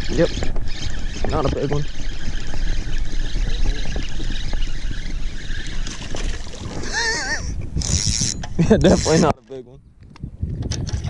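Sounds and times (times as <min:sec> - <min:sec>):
water noise: 0:00.0 - 0:09.6
wind on microphone: 0:00.0 - 0:11.0
fishing reel cranking: 0:00.1 - 0:05.8, 0:07.8 - 0:09.3.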